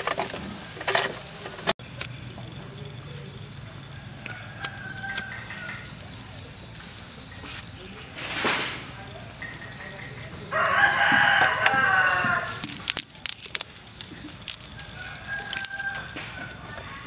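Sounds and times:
sharp clicks and snaps: 2.0s - 2.2s, 12.6s - 16.1s
rooster crowing: 3.8s - 6.3s, 10.3s - 12.6s, 14.6s - 17.0s.

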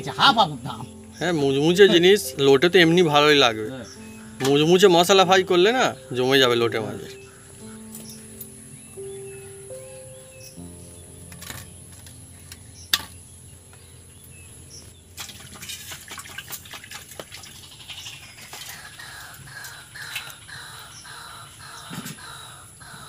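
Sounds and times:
birds chirping: 0.0s - 15.6s, 17.4s - 23.0s.

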